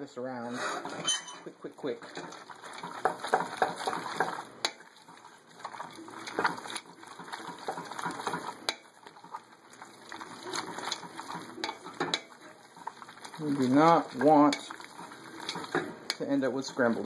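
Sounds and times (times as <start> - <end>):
pasta stirred in egg yolks: 0.3 - 17.0
utensil clicking against pot: 2.1 - 4.8, 6.2 - 8.8, 10.6 - 12.4, 13.1 - 16.7.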